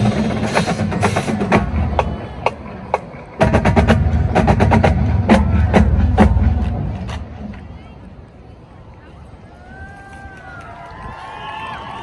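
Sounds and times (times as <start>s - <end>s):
marching band playing: 0.0s - 7.7s
drumline hitting sharp strokes: 0.0s - 7.8s.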